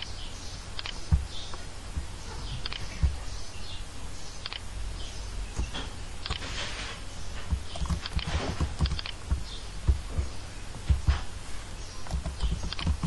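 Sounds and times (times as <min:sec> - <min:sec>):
low steady hum: 0:00.0 - 0:13.0
keyboard and mouse clicking: 0:00.8 - 0:01.6, 0:02.6 - 0:03.2, 0:07.5 - 0:10.0, 0:12.0 - 0:13.0.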